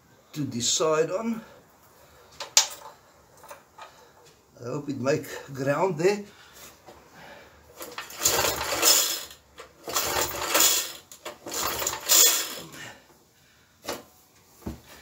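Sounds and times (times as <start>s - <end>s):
recoil starter rope rattling: 7.8s - 12.8s.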